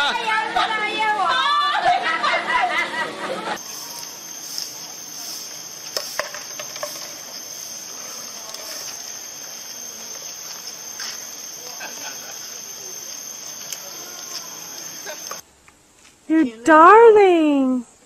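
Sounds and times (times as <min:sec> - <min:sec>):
high-pitched insect drone: 0:03.6 - 0:15.4
sharp crackling clicks: 0:13.0 - 0:15.4.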